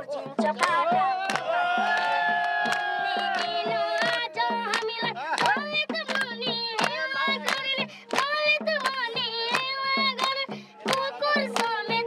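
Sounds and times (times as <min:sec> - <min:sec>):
crowd clapping along: 0:00.0 - 0:12.0
regular beat: 0:00.0 - 0:12.0
boy singing into microphone: 0:03.0 - 0:12.0.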